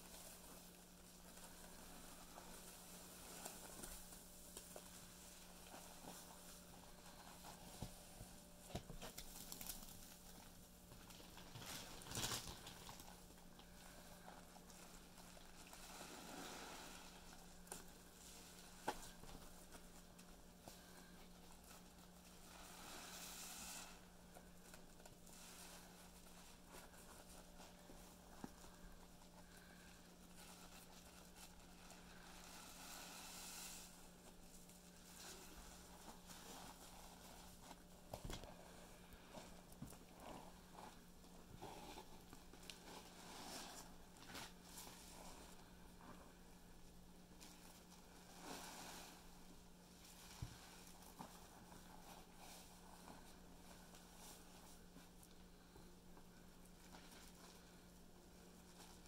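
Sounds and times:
foam fizzing hiss: 0:22.4 - 0:24.1, 0:32.1 - 0:34.2, 0:48.4 - 0:49.3
wet sponges squelching: 0:47.3 - 0:49.3.

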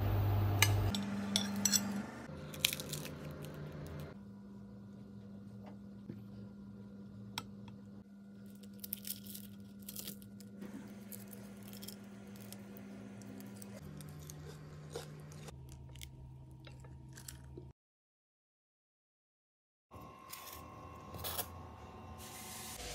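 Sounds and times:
crisp flatbread tearing: 0:02.5 - 0:03.6, 0:08.4 - 0:12.7.

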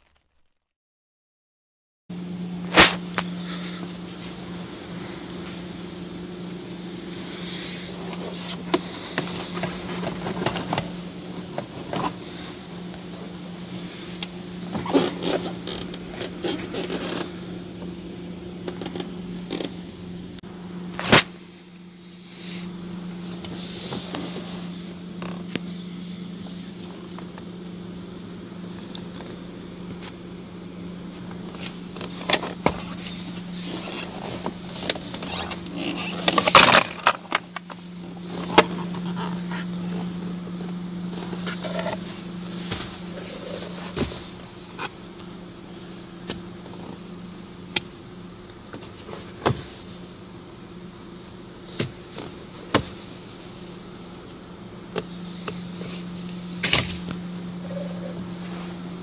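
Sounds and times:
low hum: 0:02.1 - 0:59.0.

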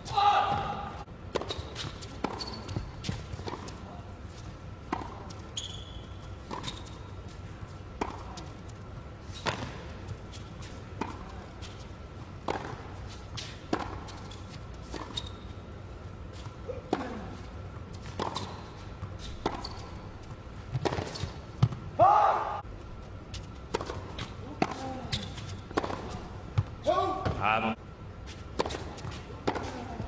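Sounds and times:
low arena hum: 0:00.0 - 0:30.0
rackets hitting tennis ball: 0:18.1 - 0:21.8, 0:23.6 - 0:27.5, 0:28.5 - 0:30.0.

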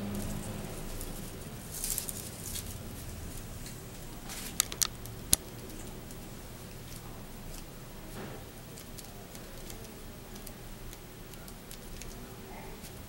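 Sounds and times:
paper rustling: 0:04.2 - 0:05.8
sharp paper clicks: 0:04.3 - 0:13.0.

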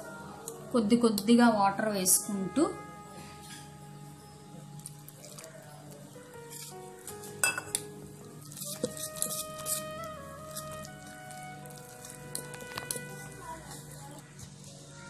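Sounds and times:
soft background music: 0:00.0 - 0:15.0
whisk scraping steel bowl: 0:08.5 - 0:14.0.

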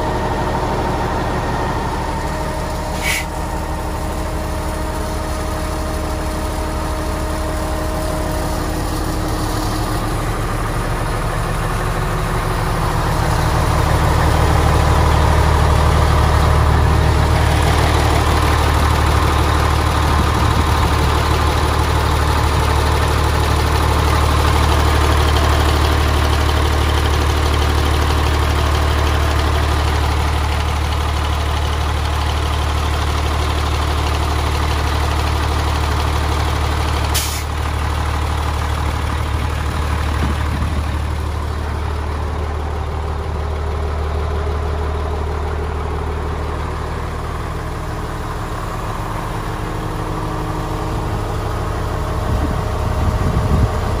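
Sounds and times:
diesel engine idling: 0:00.0 - 0:54.0
short hiss: 0:02.8 - 0:03.5, 0:37.2 - 0:37.5.

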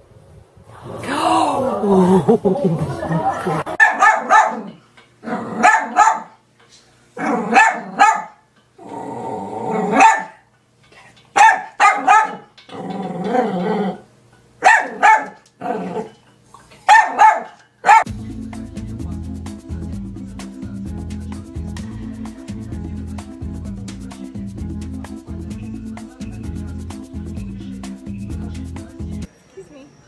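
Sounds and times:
small dog yapping: 0:03.8 - 0:04.7, 0:05.6 - 0:06.3, 0:07.2 - 0:08.4, 0:09.8 - 0:10.4, 0:11.4 - 0:12.5, 0:14.6 - 0:16.1, 0:16.9 - 0:18.1
dog growling: 0:04.6 - 0:05.7, 0:07.2 - 0:08.0, 0:08.8 - 0:10.0, 0:12.3 - 0:14.1, 0:15.6 - 0:16.2.

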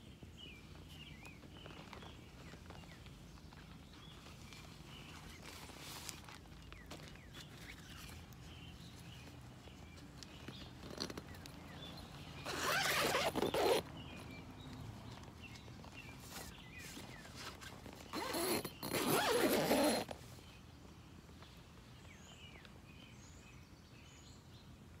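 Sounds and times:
tent zipper being pulled: 0:12.4 - 0:13.9, 0:16.2 - 0:20.2.

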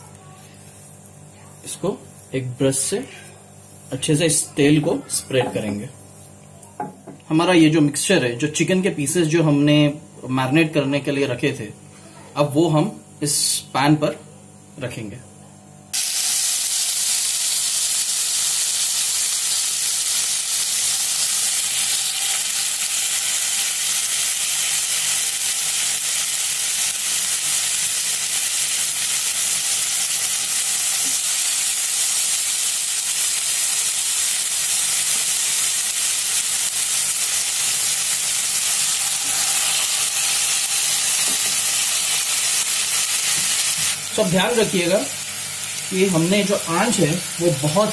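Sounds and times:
chicken sizzling in hot oil: 0:15.9 - 0:47.9.

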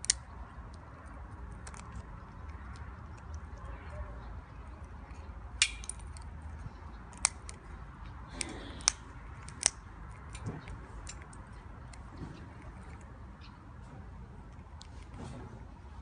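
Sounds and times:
gnawing clicks: 0:04.8 - 0:13.1
beak cracking nut shell: 0:07.0 - 0:07.7, 0:08.3 - 0:12.1.

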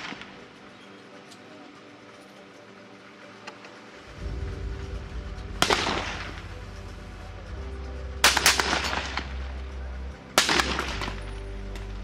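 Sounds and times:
rifle shots echoing: 0:05.6 - 0:06.4, 0:08.2 - 0:09.4, 0:10.4 - 0:11.3.

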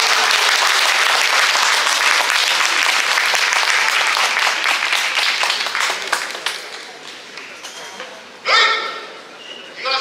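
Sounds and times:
audience applauding: 0:00.0 - 0:07.2.

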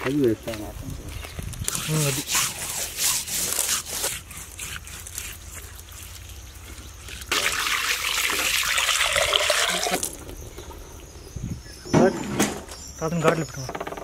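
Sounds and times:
water pouring onto fish: 0:07.0 - 0:10.2.

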